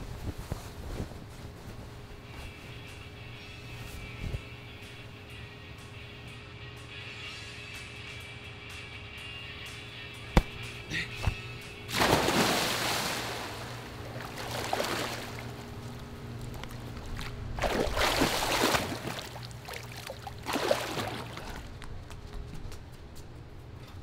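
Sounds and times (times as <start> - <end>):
steady low hum: 0.0 - 24.0
water splashing and sloshing: 10.4 - 22.1
big splash into pool: 11.9 - 15.5.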